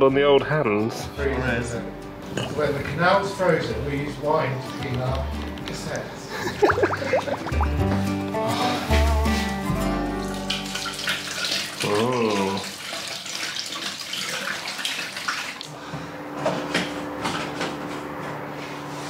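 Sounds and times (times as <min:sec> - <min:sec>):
water pouring into plastic spout: 0:10.4 - 0:15.7.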